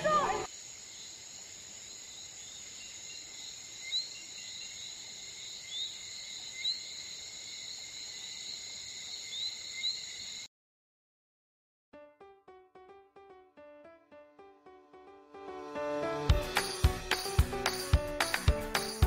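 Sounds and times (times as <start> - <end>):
high-pitched insect chorus: 0.0 - 10.5.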